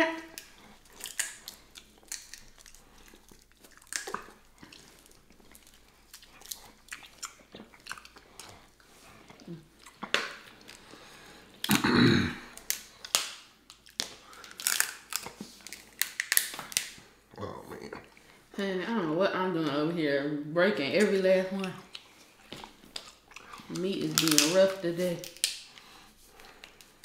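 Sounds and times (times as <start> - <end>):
close-up chewing: 0.2 - 11.8, 12.4 - 18.5, 21.5 - 27.0
crab shells cracking: 0.3 - 8.5, 12.4 - 17.0, 21.6 - 24.6, 25.2 - 27.0.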